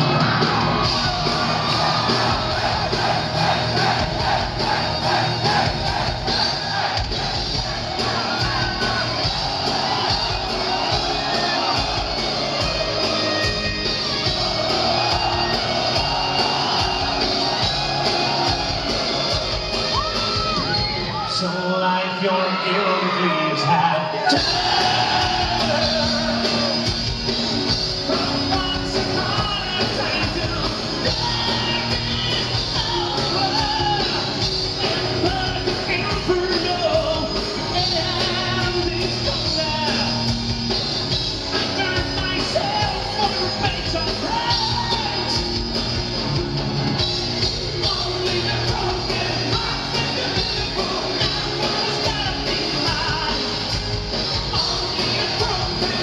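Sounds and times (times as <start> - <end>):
electric guitars: 0.0 - 21.3, 22.5 - 56.0
drums: 0.0 - 21.7, 22.9 - 56.0
lead vocals: 0.0 - 40.4, 41.4 - 45.8, 47.4 - 56.0.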